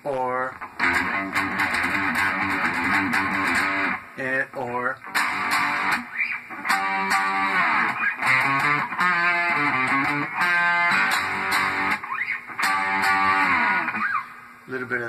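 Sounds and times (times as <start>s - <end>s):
electric guitar riff: 0.6s - 4.2s, 5.0s - 14.6s.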